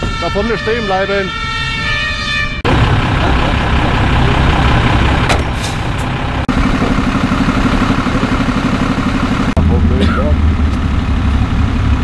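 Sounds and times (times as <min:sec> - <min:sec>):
diesel engines idling: 0:02.6 - 0:12.0.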